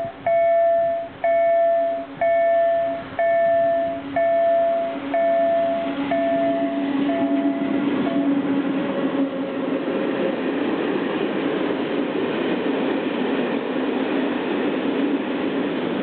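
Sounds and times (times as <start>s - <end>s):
electric locomotive hum: 0.0s - 16.0s
level crossing bell ringing: 0.3s - 7.7s.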